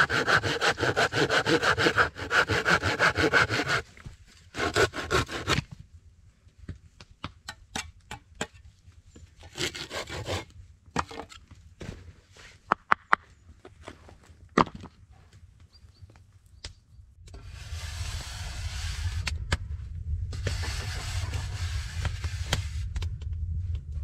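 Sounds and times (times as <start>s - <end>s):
low rumble: 17.0s - 24.0s
spade scraping sandy earth: 17.4s - 19.3s, 20.4s - 22.9s.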